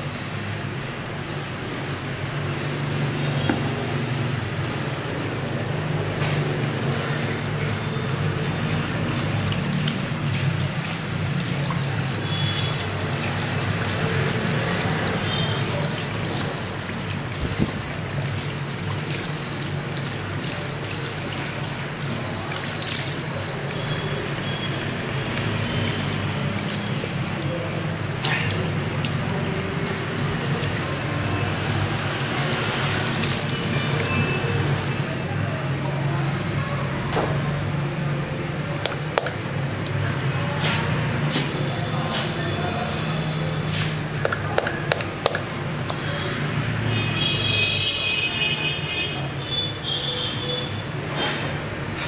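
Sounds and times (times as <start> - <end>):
shower head water running: 2.4 - 34.9.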